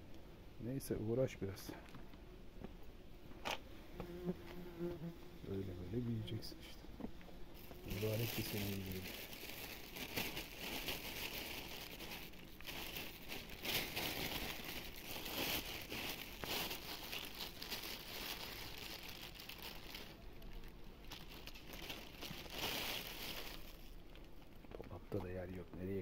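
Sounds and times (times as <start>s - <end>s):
plastic bag crinkling: 7.6s - 24.5s.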